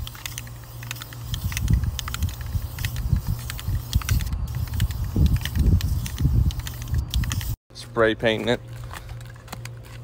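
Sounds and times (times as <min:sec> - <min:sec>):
spray can hissing: 0:00.0 - 0:07.6
wind buffeting microphone: 0:01.2 - 0:07.6.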